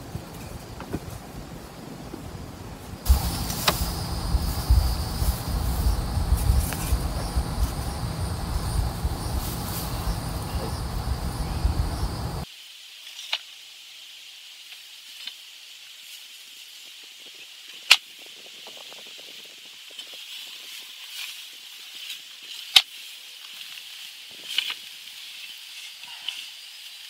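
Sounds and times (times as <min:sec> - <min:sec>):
wind rumble on microphone: 0:00.0 - 0:12.4
high insect drone: 0:03.0 - 0:12.5
post-hole digger striking soil: 0:03.1 - 0:12.1
crumbling soil scrapes: 0:03.1 - 0:12.4.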